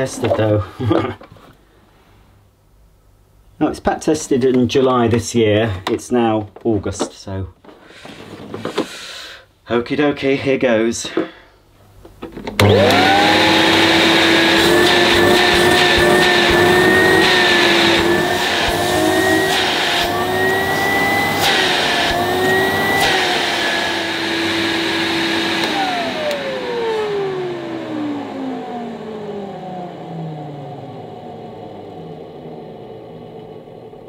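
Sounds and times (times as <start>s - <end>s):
vacuum cleaner running: 12.2s - 34.0s
motor winding down whine: 12.6s - 34.0s.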